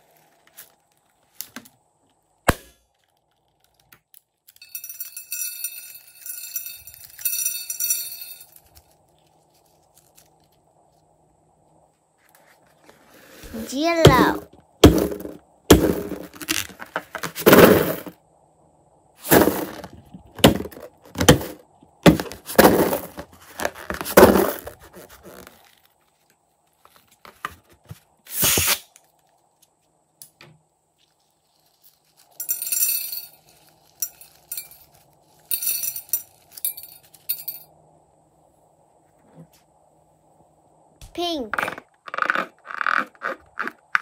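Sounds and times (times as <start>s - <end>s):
plastic gems clinking on glass: 4.5s - 8.9s, 32.2s - 37.7s.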